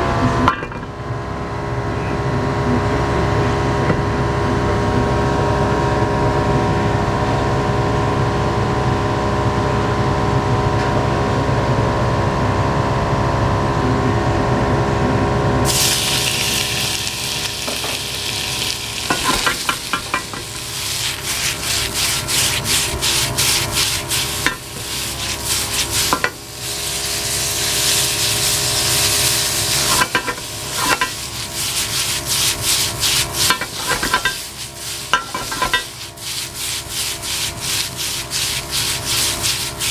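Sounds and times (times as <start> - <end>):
gas stove hum and roar: 0.0 - 39.9
meat sizzling in hot oil: 15.6 - 39.9
chopsticks scraping a pan: 15.7 - 39.9.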